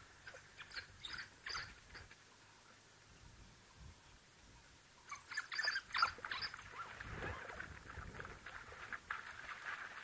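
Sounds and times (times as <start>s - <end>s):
water splashing and sloshing: 6.1s - 10.0s.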